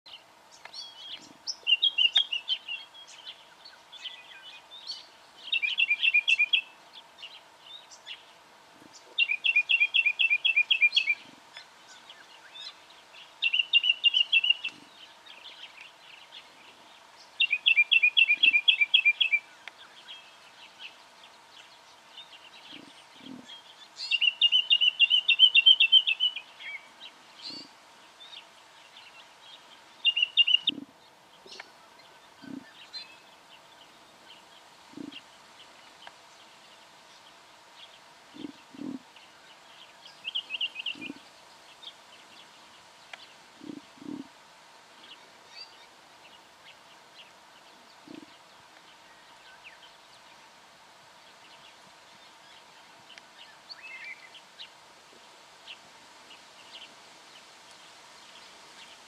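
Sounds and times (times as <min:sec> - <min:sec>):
bird rapid high chirping: 0:30.0 - 0:30.8.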